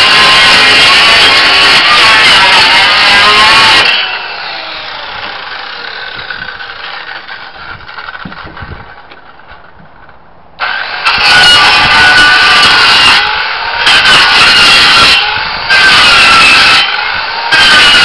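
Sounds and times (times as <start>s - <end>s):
saw blade winding down whine: 0.0s - 8.4s
circular saw running: 0.0s - 9.0s, 10.6s - 18.0s.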